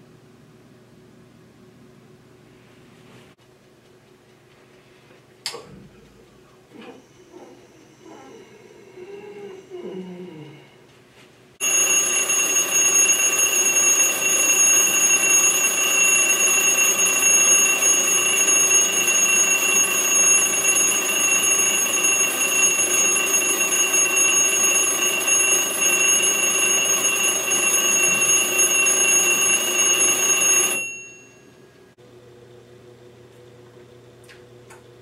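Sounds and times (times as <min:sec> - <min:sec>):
alarm clock ringing: 0:11.6 - 0:31.7.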